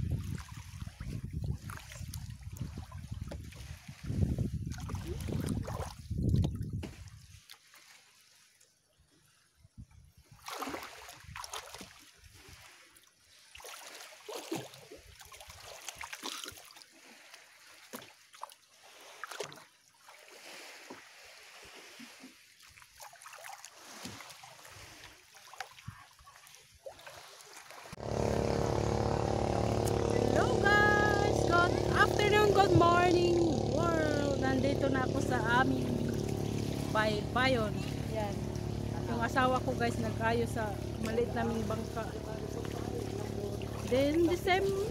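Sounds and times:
water splashing and lapping: 0.0s - 44.9s
steady engine hum: 28.0s - 44.9s.

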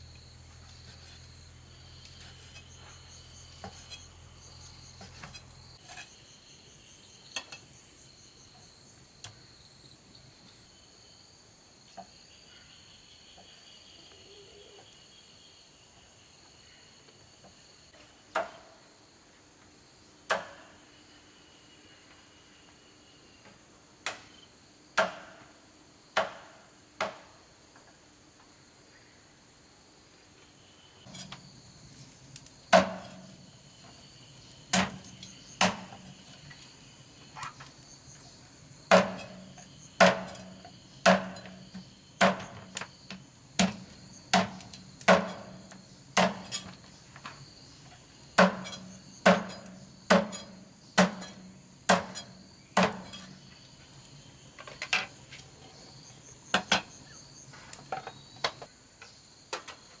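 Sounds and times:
insects droning: 0.0s - 60.0s
cleaver chopping on wooden block: 43.6s - 45.4s, 48.4s - 50.4s, 51.0s - 52.2s.

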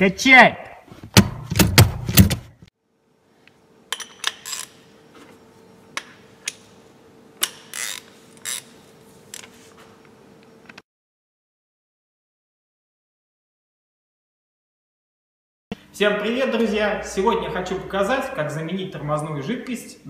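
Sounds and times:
brake pedal knocks and clacks: 1.1s - 2.6s
faint steady hum: 2.8s - 10.8s.

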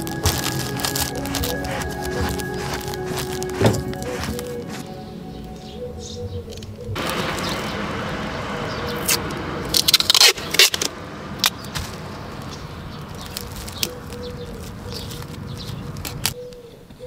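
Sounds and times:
tape ripping off roll: 0.0s - 4.8s.

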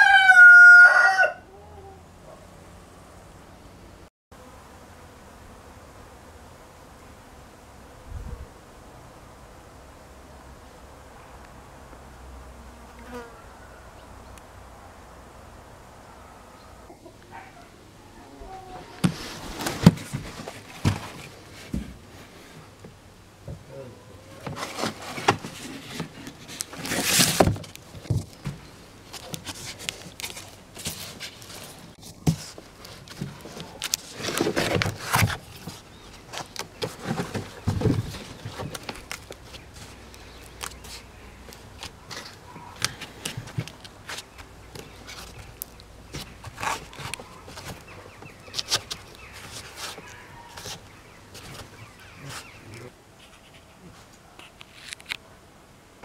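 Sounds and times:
cardboard rustling and scraping: 18.8s - 22.7s, 24.3s - 52.6s
birds chirping: 34.8s - 53.0s.

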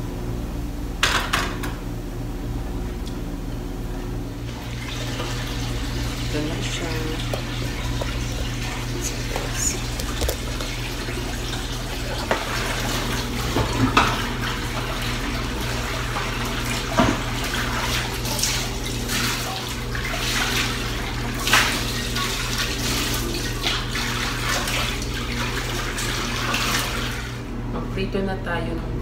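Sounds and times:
tap running into a sink: 16.8s - 17.3s.

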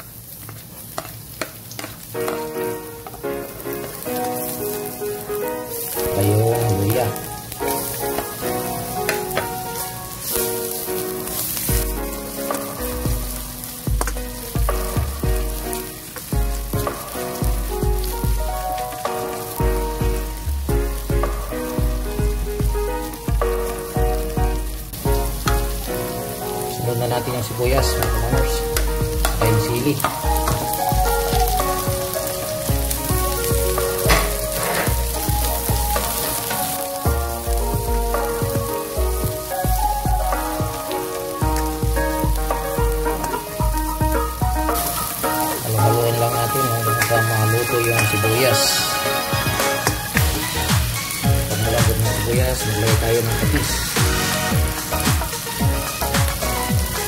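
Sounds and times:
garlic sizzling in oil: 0.0s - 57.0s
background music with low beat: 11.6s - 57.0s
spatula scraping wok: 27.8s - 36.9s, 46.3s - 57.0s.

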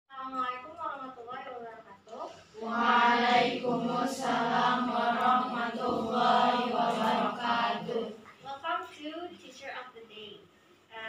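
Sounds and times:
girls chanting in unison: 2.6s - 8.2s.

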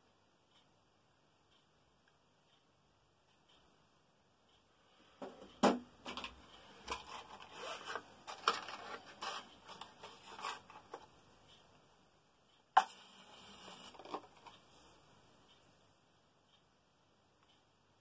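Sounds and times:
matchbox drawer sliding: 6.8s - 10.8s.

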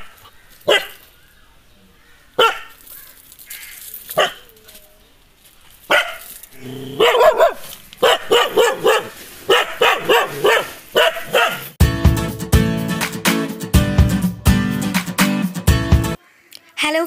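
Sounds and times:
dog barking aggressively: 0.0s - 1.0s, 2.4s - 2.8s, 4.2s - 4.4s, 5.9s - 11.8s.

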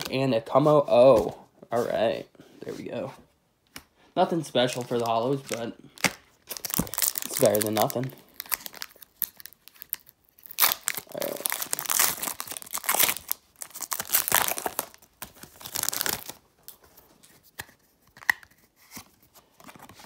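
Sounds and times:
cards being handled: 4.6s - 10.0s
foil wrapper tearing and crinkling: 4.9s - 16.4s.

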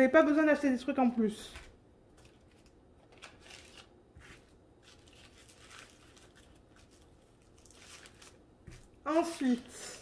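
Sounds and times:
plastic bags rustling: 2.2s - 9.7s.

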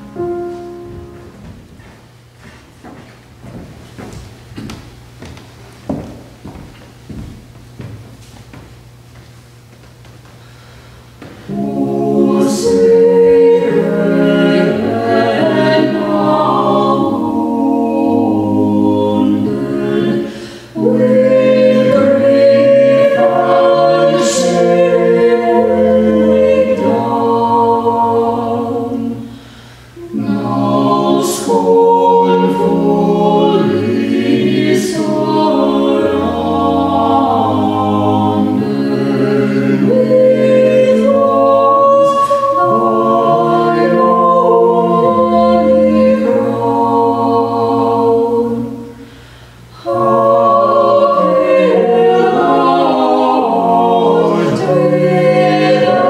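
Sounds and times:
choir singing in harmony: 0.0s - 1.7s, 11.2s - 56.0s
singers breathing: 10.3s - 11.5s, 20.2s - 20.8s, 29.2s - 30.0s, 48.9s - 49.8s.

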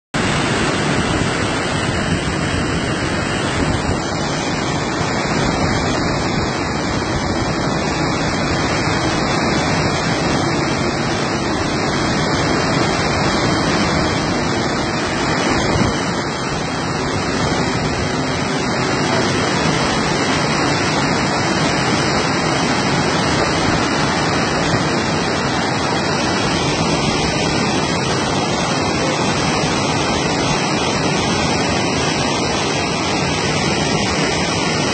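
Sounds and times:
water rushing over a weir: 0.2s - 34.9s.

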